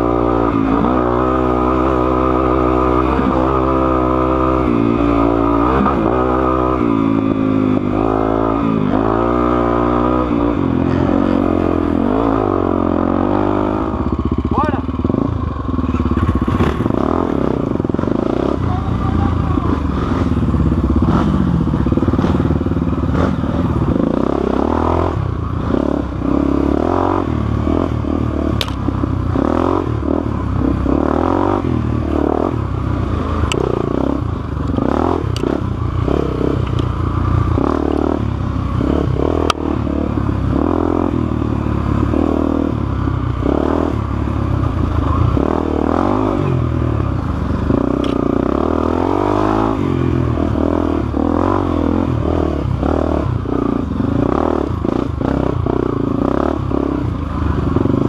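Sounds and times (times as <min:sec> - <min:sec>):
dirt bike engine revving: 0:00.0 - 0:58.0
sharp clicks: 0:28.6 - 0:28.8.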